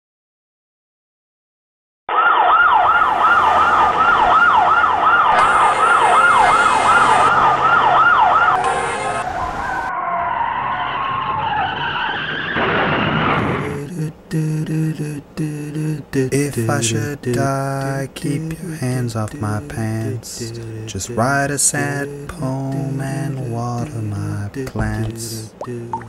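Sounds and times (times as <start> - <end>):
ambulance siren: 2.1 - 13.7, 21.8 - 23.8.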